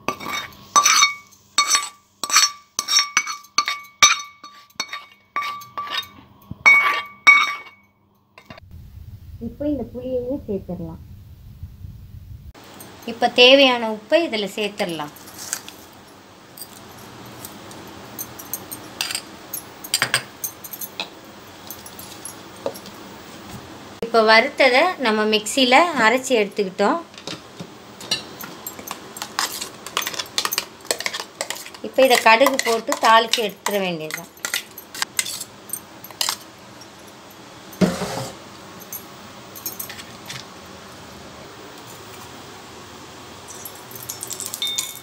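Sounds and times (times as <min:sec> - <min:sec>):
spoon clinking in steel bowl: 0:00.1 - 0:08.6, 0:18.2 - 0:22.9, 0:28.0 - 0:36.4, 0:43.5 - 0:45.0.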